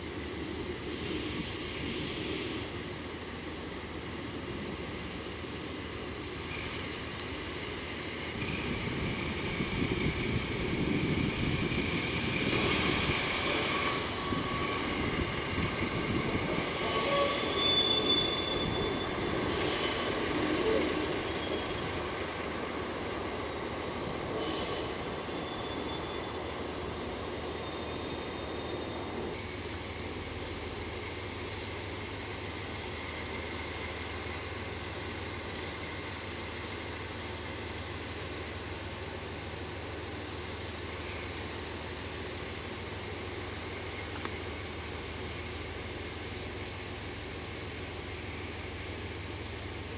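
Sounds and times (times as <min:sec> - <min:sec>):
train wheels squealing: 0:00.8 - 0:03.1, 0:06.4 - 0:22.2, 0:24.2 - 0:26.7, 0:27.3 - 0:30.0, 0:40.8 - 0:41.6.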